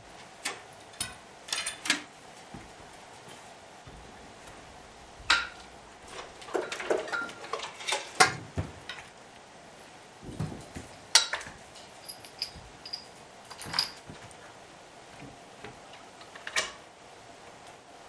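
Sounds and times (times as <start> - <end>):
metal parts knocking and clinking: 0.4 - 2.1, 11.1 - 14.2.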